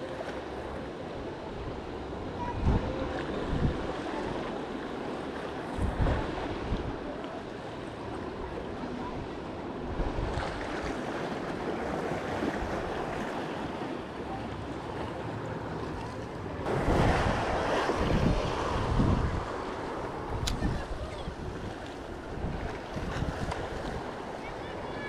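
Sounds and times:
surf on rocky shoreline: 0:00.0 - 0:25.0
wind buffeting microphone: 0:01.7 - 0:04.6, 0:05.6 - 0:07.2, 0:16.5 - 0:25.0.

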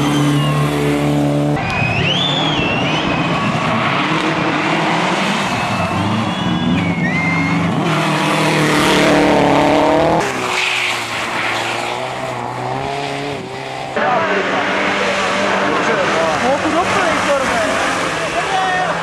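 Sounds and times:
tyre squeal: 0:00.0 - 0:01.0
rally car engine revving: 0:00.0 - 0:19.0
rally car engine steady revs: 0:11.4 - 0:18.5.

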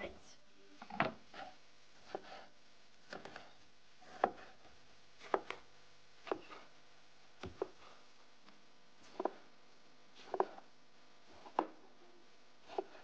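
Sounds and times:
knife slicing on cutting board: 0:01.3 - 0:04.6.

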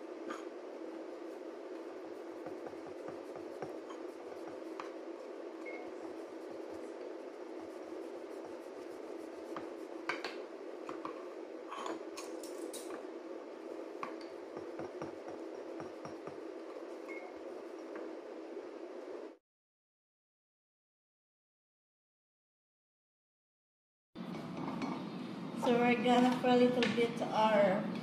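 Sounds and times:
steady background hum: 0:00.0 - 0:19.4, 0:24.2 - 0:28.0
rolling pin pressing bread: 0:02.1 - 0:05.1, 0:14.5 - 0:16.5.

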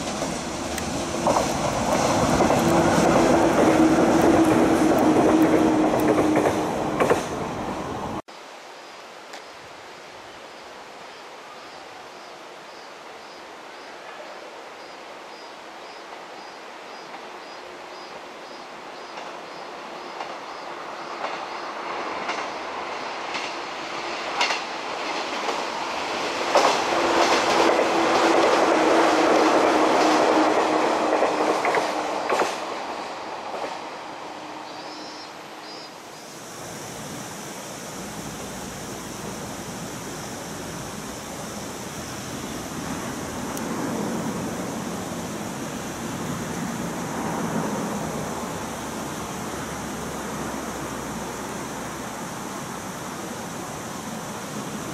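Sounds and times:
wheels clacking over rail joints: 0:00.0 - 0:07.5, 0:26.4 - 0:33.9
electric train passing: 0:00.0 - 0:08.2, 0:17.1 - 0:54.9
steady hiss background: 0:06.6 - 0:54.9.

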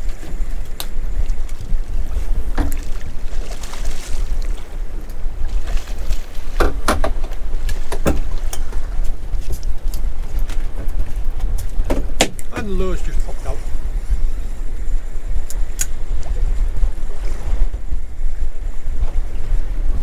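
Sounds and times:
wind rumble on microphone: 0:00.0 - 0:20.0
sharp knocks and clicks: 0:06.6 - 0:07.3.

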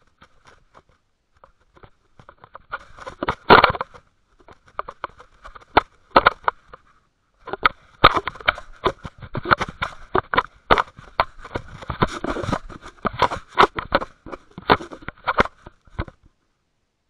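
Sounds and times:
object rubbing against camera housing: 0:00.1 - 0:16.2.

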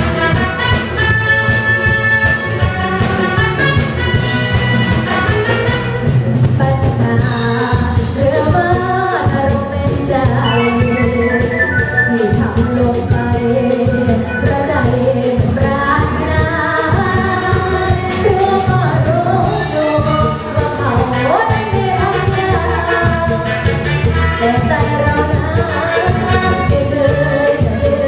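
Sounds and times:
live band with drum kit: 0:00.0 - 0:28.0
woman singing into a microphone: 0:06.5 - 0:28.0.

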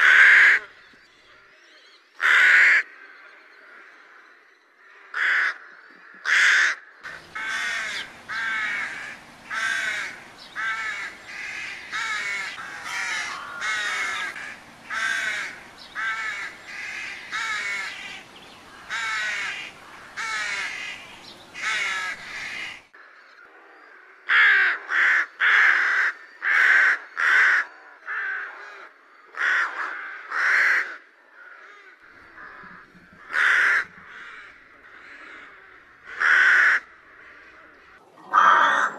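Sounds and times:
rooks cawing: 0:00.0 - 0:00.7, 0:02.2 - 0:03.1, 0:04.8 - 0:23.0, 0:24.1 - 0:38.9
steady background noise: 0:07.0 - 0:23.0.

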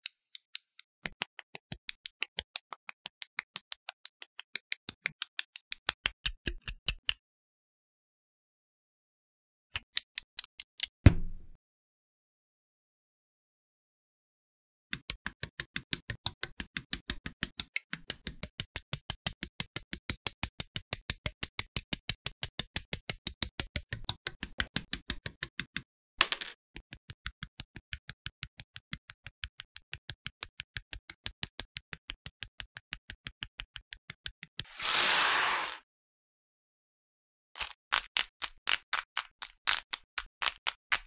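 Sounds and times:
short scrape: 0:34.7 - 0:35.8.

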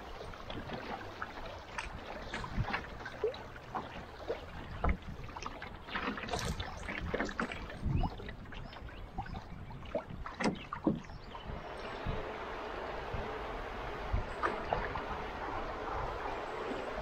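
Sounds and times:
rushing river water: 0:00.0 - 0:17.0
water splashing against canoe: 0:00.0 - 0:17.0.

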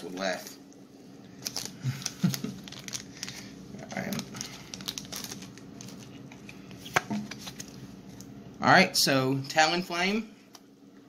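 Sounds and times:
foil wrapper crinkling: 0:01.4 - 0:07.8.

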